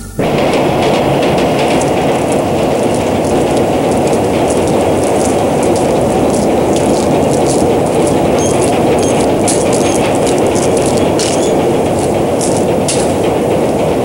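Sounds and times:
train rumbling on track: 0.0s - 14.0s.

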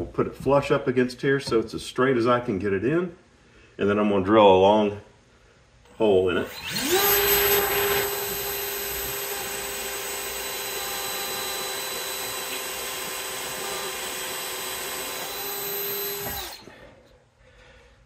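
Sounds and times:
cordless drill boring into wood: 6.4s - 16.7s.

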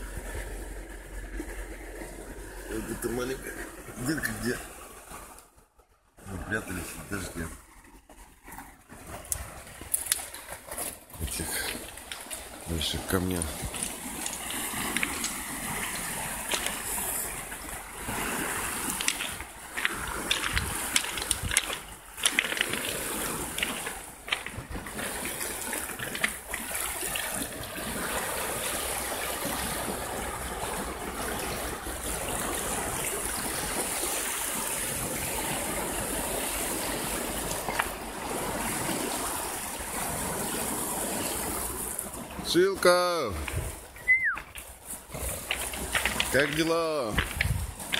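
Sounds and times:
waves splashing on pebbles: 6.3s - 47.9s
sharp clicks and knocks: 18.9s - 22.9s, 45.4s - 47.9s.

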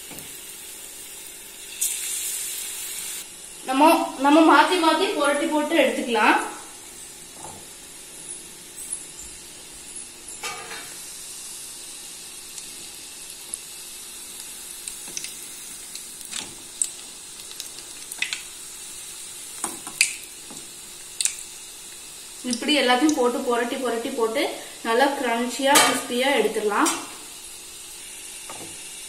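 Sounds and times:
food deep-frying sizzle: 0.0s - 29.0s
spoon clicks and oil pops: 14.9s - 18.5s, 19.6s - 23.2s.

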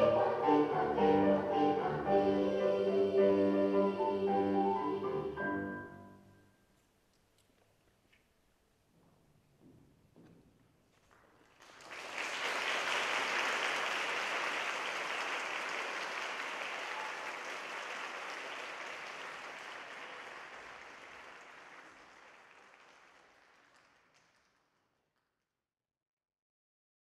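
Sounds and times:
audience applauding: 11.0s - 25.0s.

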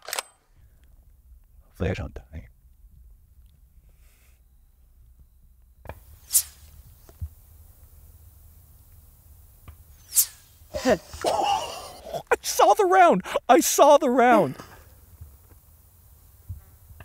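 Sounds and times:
bullets whizzing overhead: 6.2s - 6.8s, 10.0s - 10.6s
man's voice: 12.2s - 14.7s.

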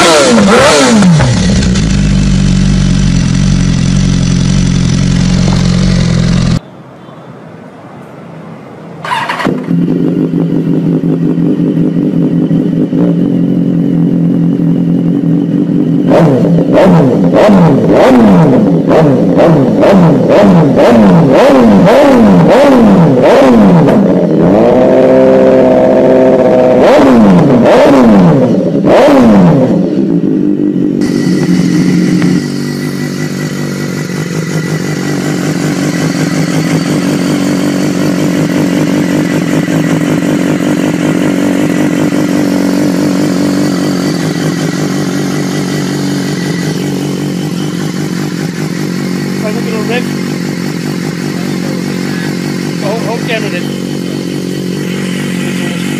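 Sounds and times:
motorcycle engine revving: 0.0s - 6.6s, 9.0s - 55.9s
motorcycle engine idling: 0.0s - 6.7s, 9.0s - 24.6s, 28.4s - 55.9s.

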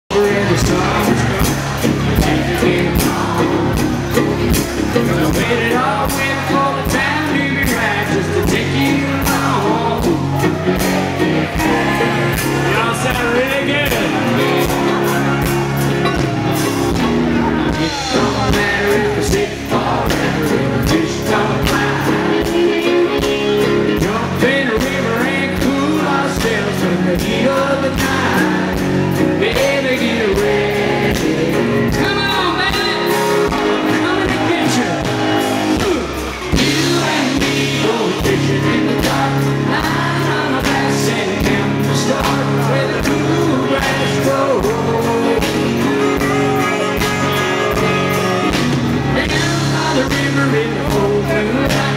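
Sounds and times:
bass: 0.0s - 51.9s
guitar: 0.1s - 51.9s
man singing lead: 0.1s - 51.9s
steady drum beat: 0.1s - 51.9s.

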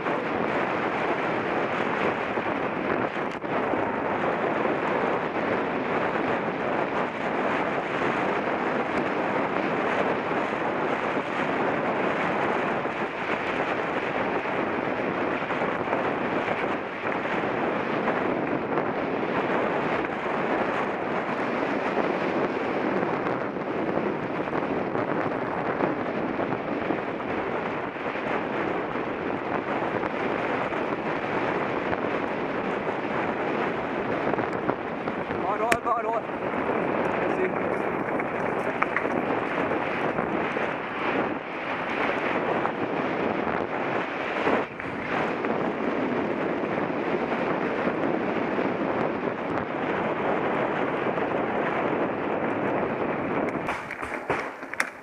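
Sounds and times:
wind on microphone: 0.0s - 55.0s
bike rattling and knocking: 37.0s - 39.7s, 53.5s - 55.0s.

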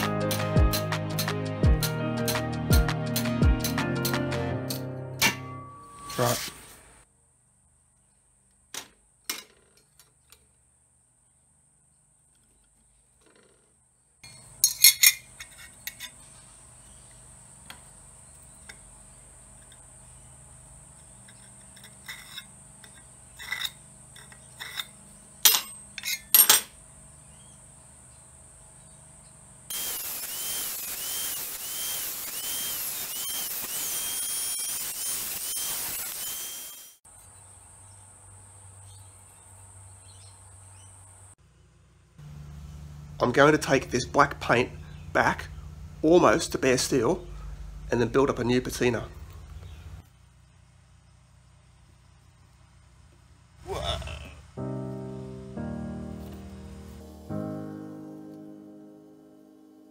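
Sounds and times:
angle grinder cutting steel: 29.7s - 37.0s.

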